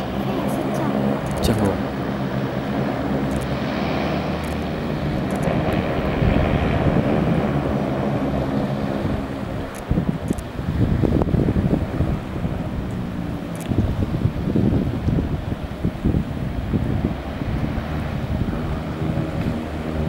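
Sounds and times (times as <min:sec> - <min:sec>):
seaplane propeller engines humming: 0:00.0 - 0:20.0
wind buffeting microphone: 0:00.0 - 0:20.0.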